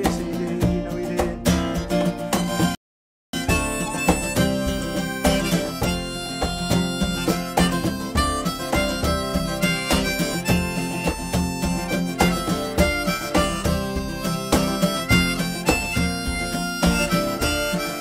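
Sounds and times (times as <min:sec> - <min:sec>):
strummed acoustic guitar: 0:00.0 - 0:02.8, 0:03.4 - 0:18.0
harmonica melody: 0:01.8 - 0:18.0.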